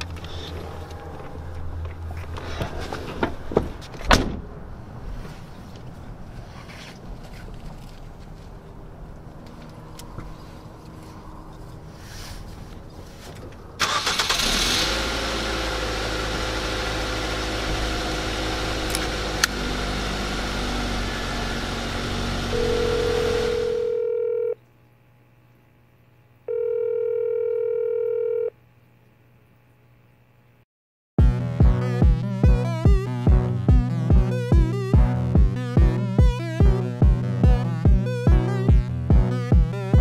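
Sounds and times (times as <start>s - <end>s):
car engine running: 13.8s - 23.8s, 31.2s - 40.0s
telephone ringback tone: 22.5s - 24.6s, 26.5s - 28.5s.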